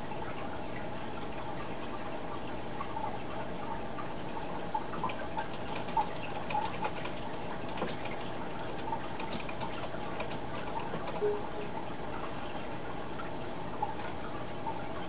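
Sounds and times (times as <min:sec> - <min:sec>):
water plinks and bubbling: 0:00.6 - 0:15.0
thin high whine: 0:11.2 - 0:12.8.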